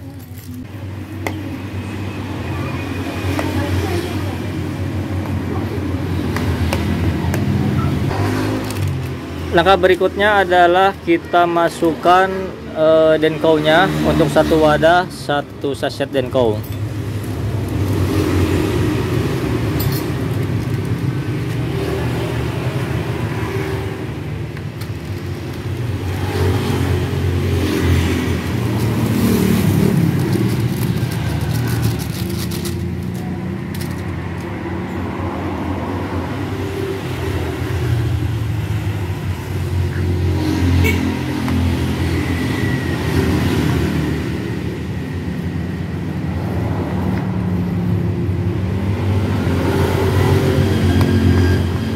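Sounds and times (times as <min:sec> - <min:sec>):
plastic sachet crinkling: 0:29.8 - 0:34.0.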